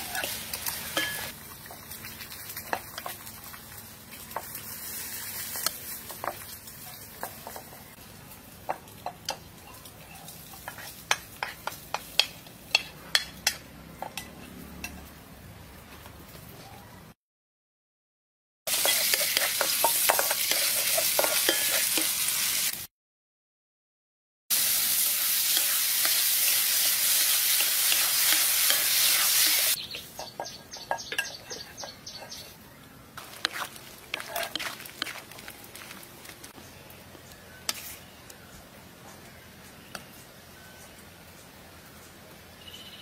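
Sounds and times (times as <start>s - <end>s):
meat and onion sizzling in wok: 0.0s - 14.4s, 18.7s - 22.9s, 24.5s - 32.6s, 33.2s - 36.6s.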